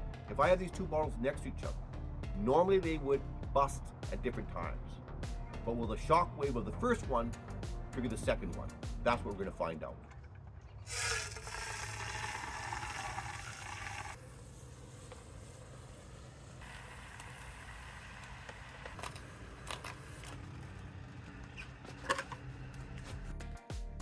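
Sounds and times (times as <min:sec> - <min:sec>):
liquid nitrogen hissing: 0:10.9 - 0:21.8.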